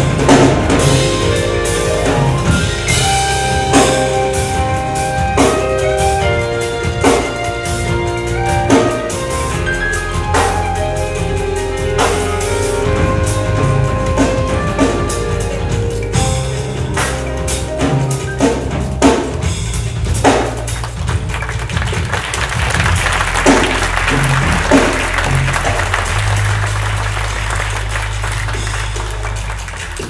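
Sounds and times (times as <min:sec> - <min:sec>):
music with heavy drum beat: 0:00.0 - 0:30.0
audience applause: 0:20.6 - 0:30.0.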